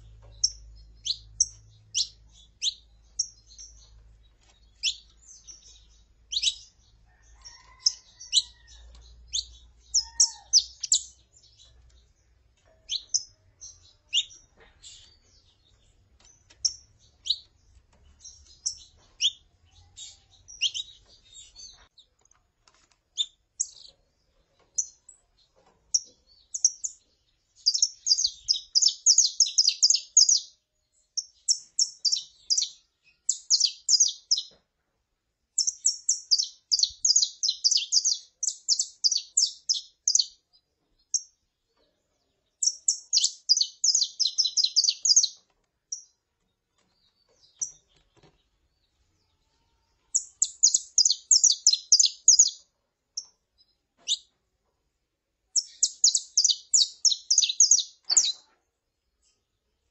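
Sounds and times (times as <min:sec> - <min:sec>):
finch high chirps: 0:00.0 - 0:22.1, 0:25.9 - 0:30.6, 0:31.2 - 0:34.6, 0:35.6 - 0:40.4, 0:42.6 - 0:46.2, 0:49.3 - 0:54.3, 0:55.6 - 0:58.6.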